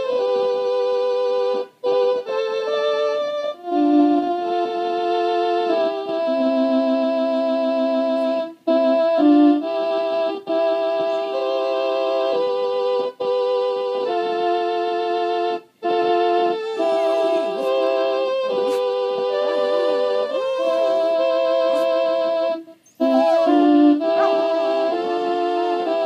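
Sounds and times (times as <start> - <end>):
hymn on keyboard instrument: 0.0 - 26.0
dog howling: 16.6 - 22.0, 22.8 - 26.0.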